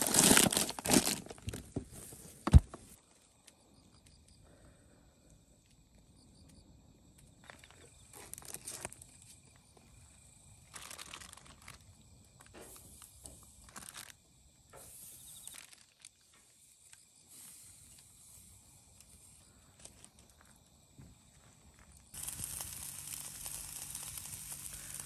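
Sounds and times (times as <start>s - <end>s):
plastic film crinkling: 0.0s - 1.8s, 8.2s - 9.0s, 10.7s - 12.0s, 13.6s - 14.2s, 15.3s - 16.2s, 22.2s - 25.0s.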